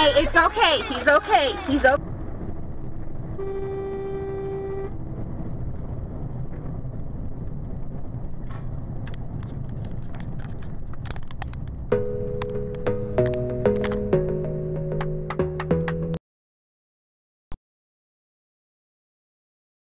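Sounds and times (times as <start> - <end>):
road and engine rumble: 0.0 - 16.2
vehicle horn: 3.3 - 5.0
music: 11.9 - 16.2.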